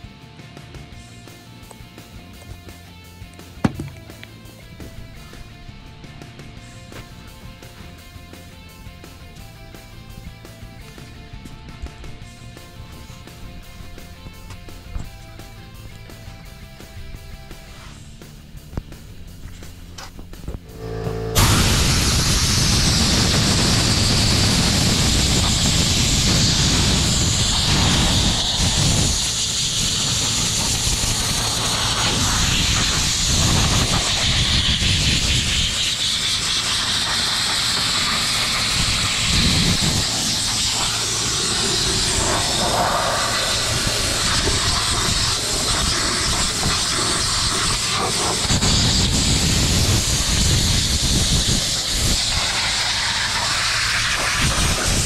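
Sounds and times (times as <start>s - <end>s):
low rumble: 20.4s - 34.8s
pressure washer spraying: 20.7s - 55.0s.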